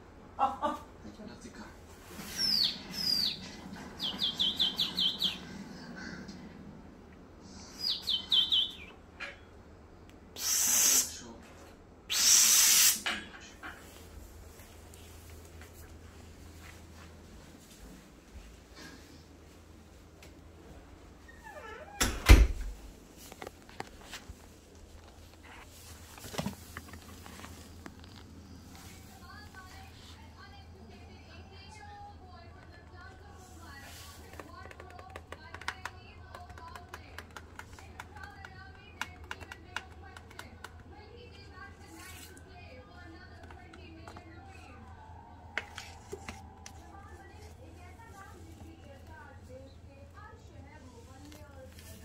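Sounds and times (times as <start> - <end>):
small bird chirping: 2.2 - 6.4, 7.4 - 9.4
objects bumped and moved: 26.0 - 28.0.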